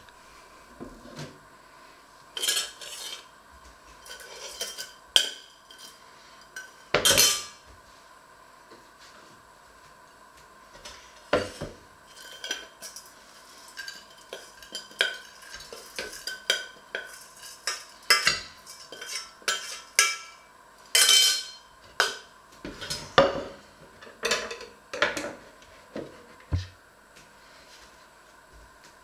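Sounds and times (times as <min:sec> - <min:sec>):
metal spoon scraping saucepan: 0:02.4 - 0:03.3, 0:04.0 - 0:06.0, 0:13.8 - 0:20.4.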